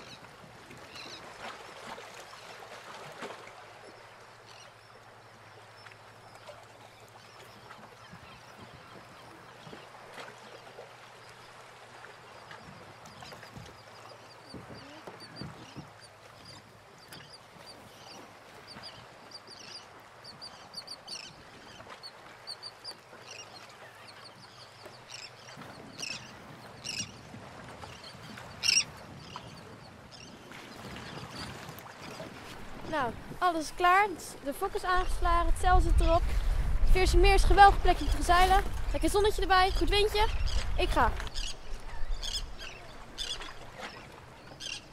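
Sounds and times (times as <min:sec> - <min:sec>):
waterfowl calling: 0:22.0 - 0:27.1, 0:28.0 - 0:29.4, 0:41.2 - 0:44.9.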